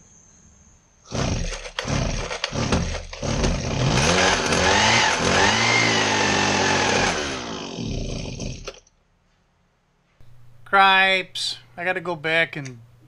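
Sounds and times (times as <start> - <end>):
small engine sputtering and revving: 1.1 - 8.8
starter rope pulled: 1.1 - 8.9.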